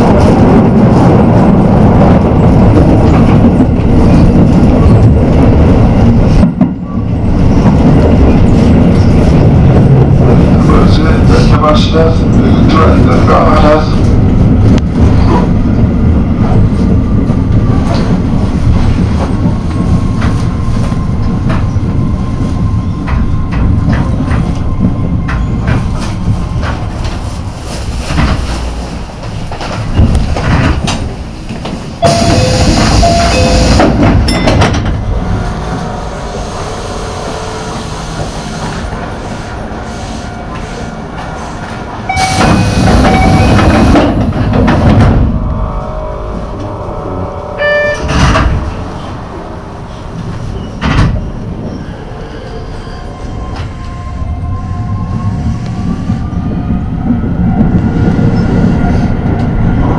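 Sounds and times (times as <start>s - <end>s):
electric train rumbling: 0.0s - 59.9s
level-crossing warning bell: 32.0s - 34.9s, 42.1s - 43.7s.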